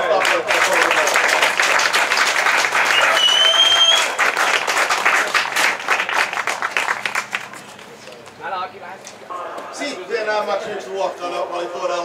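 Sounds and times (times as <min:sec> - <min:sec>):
crowd applauding: 0:00.0 - 0:08.0
short high whistle: 0:02.9 - 0:04.2.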